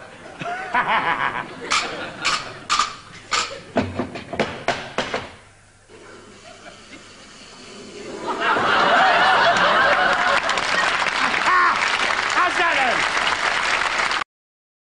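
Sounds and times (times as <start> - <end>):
audience laughter: 0.0 - 3.8, 6.0 - 12.0
applause: 9.8 - 14.2.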